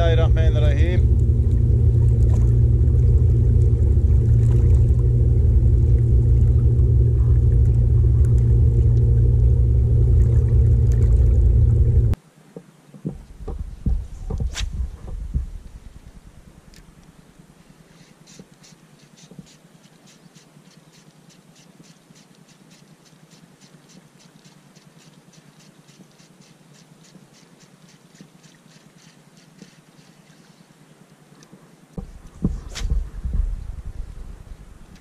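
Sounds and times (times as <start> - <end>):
loud low rumble: 0.0 - 12.2, 13.2 - 16.8, 32.0 - 35.0
faint low hum: 0.0 - 22.4, 28.0 - 35.0.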